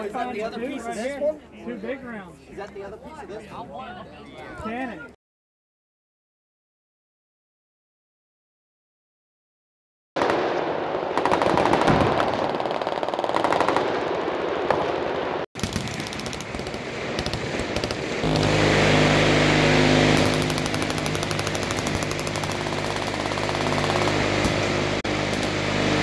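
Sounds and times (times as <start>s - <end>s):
very fast continuous gunfire: 10.2s - 18.8s, 20.0s - 26.0s
machine guns firing bursts: 11.2s - 15.0s, 15.6s - 18.7s, 20.0s - 25.6s.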